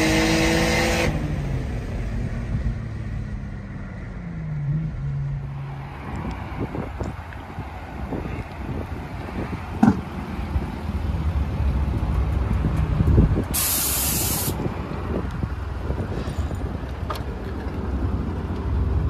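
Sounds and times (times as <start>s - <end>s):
sharp hiss: 13.5s - 14.6s.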